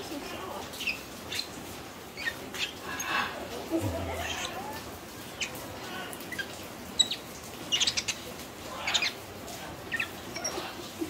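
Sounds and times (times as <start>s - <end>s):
animal chirps and squeaks: 2.2s - 3.2s, 4.1s - 5.6s, 6.2s - 8.2s, 8.8s - 9.2s, 9.9s - 10.9s.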